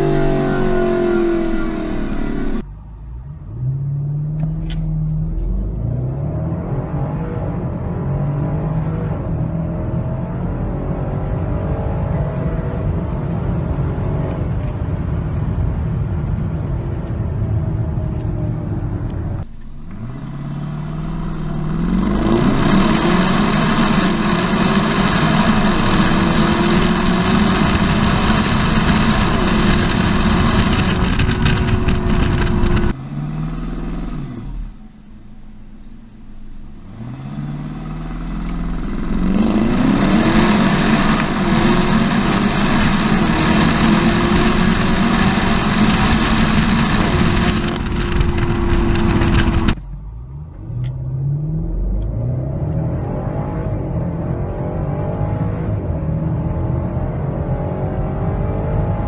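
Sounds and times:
car engine accelerating hard: 0:00.0 - 0:15.1, 0:17.1 - 0:35.0, 0:36.8 - 0:59.0
road noise: 0:00.0 - 0:59.0.

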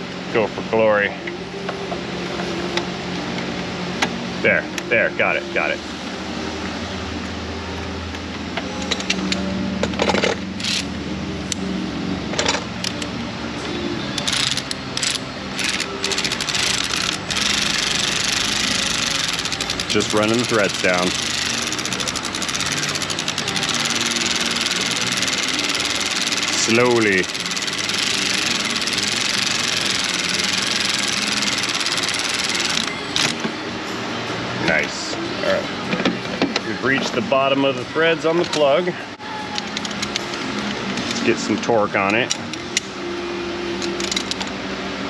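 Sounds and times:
ratchet clicking: 0:10.2 - 0:10.9, 0:14.2 - 0:33.4.

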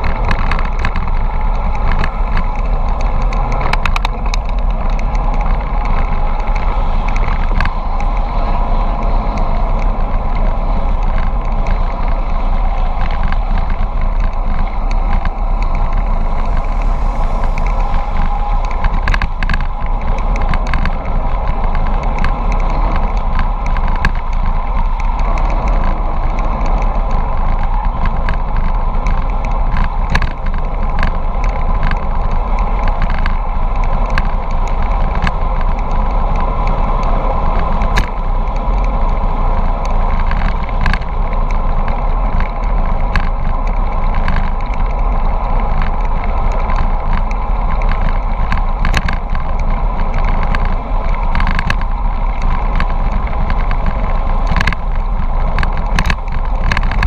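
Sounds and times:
bike clicks and rattles: 0:00.0 - 0:57.0
road noise: 0:00.0 - 0:57.0
wind rush: 0:00.0 - 0:57.0.

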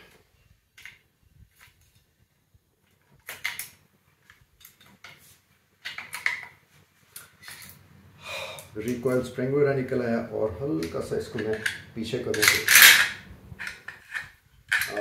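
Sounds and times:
rifle parts clicking: 0:10.8 - 0:15.0.

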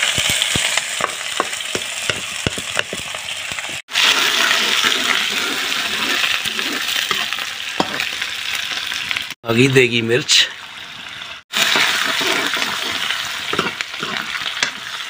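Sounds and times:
onions sizzling in oil: 0:00.0 - 0:09.4, 0:10.3 - 0:15.0
metal ladle stirring: 0:04.4 - 0:08.0, 0:11.8 - 0:14.9.

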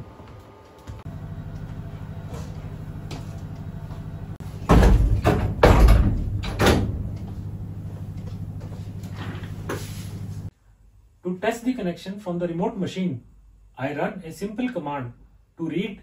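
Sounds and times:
steady low hum: 0:00.9 - 0:11.2
heavy metal door clunking shut: 0:04.4 - 0:07.3.

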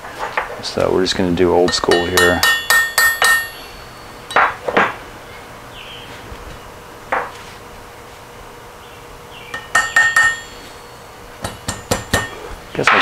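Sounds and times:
hammer blows on metal: 0:01.7 - 0:04.6, 0:09.5 - 0:12.6.

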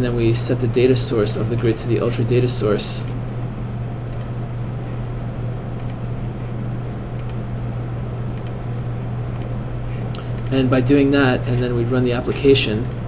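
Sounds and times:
low hum and hiss: 0:00.0 - 0:13.0
computer mouse clicks: 0:04.1 - 0:04.3, 0:05.8 - 0:06.1, 0:07.2 - 0:07.4, 0:08.4 - 0:08.6, 0:09.3 - 0:09.6, 0:10.2 - 0:10.6.

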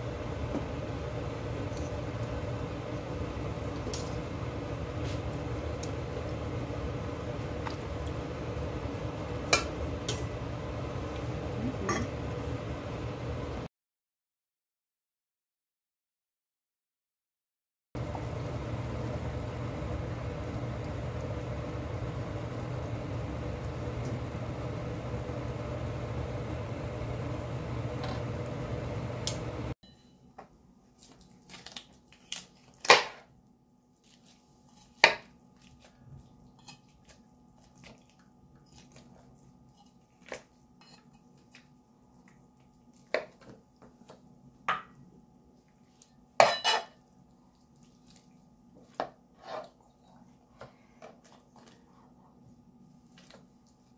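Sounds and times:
pot boiling and bubbling: 0:00.0 - 0:13.7, 0:18.0 - 0:29.8.

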